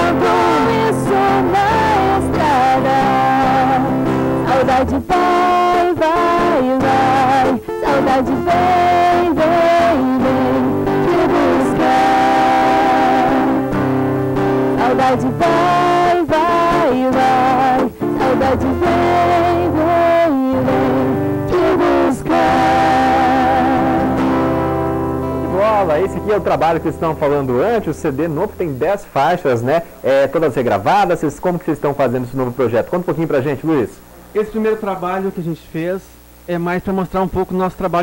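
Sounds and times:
woman singing: 0.0s - 13.9s, 14.7s - 24.4s
strummed acoustic guitar: 0.0s - 29.1s.

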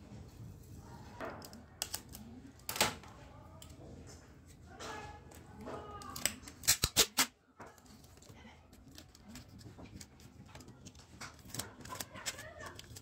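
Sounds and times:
tape handling: 5.9s - 13.0s
adhesive tape ripping off roll: 6.5s - 7.3s.

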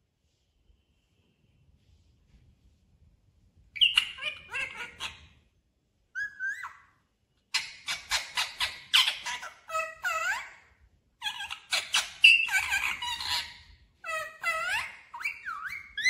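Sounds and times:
parakeet squawking and chattering: 3.8s - 5.4s, 6.2s - 6.9s, 7.5s - 16.0s.

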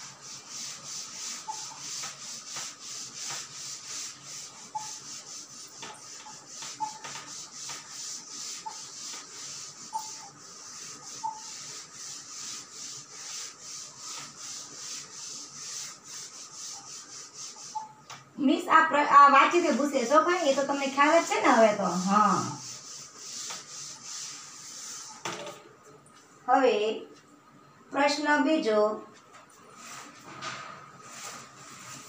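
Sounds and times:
duster rubbing on chalkboard: 0.0s - 18.1s, 19.3s - 25.4s, 29.8s - 30.3s, 31.0s - 32.0s.

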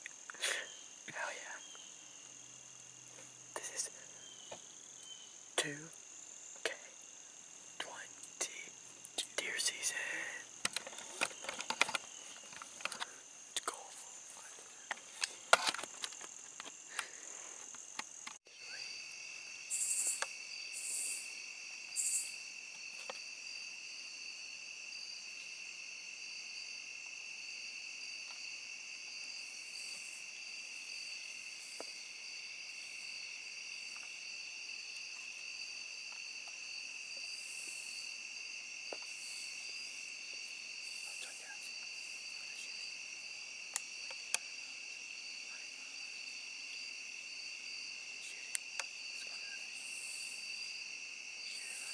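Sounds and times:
crickets and insects trilling: 0.0s - 51.9s
scattered clicks and knocks: 10.6s - 13.1s.

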